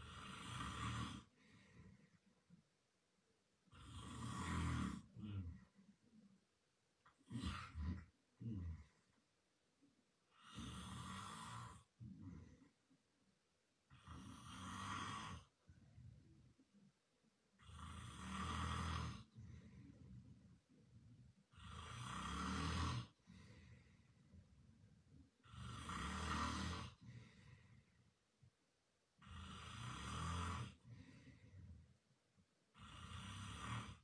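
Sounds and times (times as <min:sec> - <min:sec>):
man snoring loudly: 0:00.0 - 0:01.3, 0:03.7 - 0:05.4, 0:10.4 - 0:11.9, 0:13.9 - 0:15.5, 0:17.6 - 0:19.3, 0:21.5 - 0:23.2, 0:25.4 - 0:27.0, 0:29.2 - 0:30.9, 0:32.8 - 0:34.0
quiet breathing: 0:00.0 - 0:34.0.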